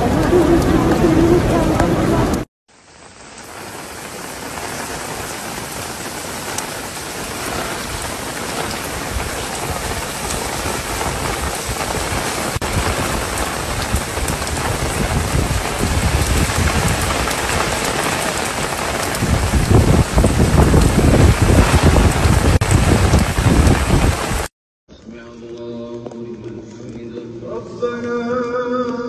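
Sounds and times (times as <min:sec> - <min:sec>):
heavy rain: 0:00.0 - 0:24.5.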